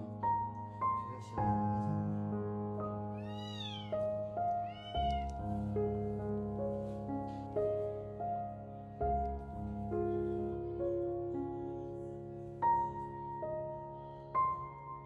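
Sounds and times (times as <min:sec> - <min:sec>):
kitten meowing: 0:03.1 - 0:05.4.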